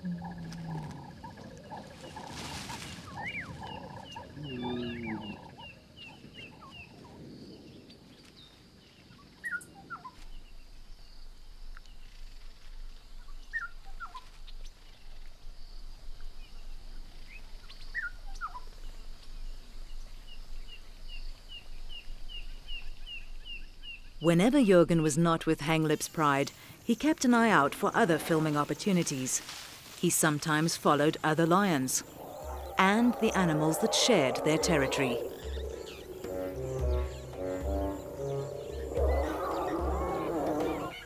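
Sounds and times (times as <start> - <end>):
lions grunting and mewing: 0.0 - 2.4, 3.4 - 5.7, 31.7 - 41.0
insect hum: 0.0 - 24.7, 25.6 - 41.0
bird chirps: 32.0 - 41.0.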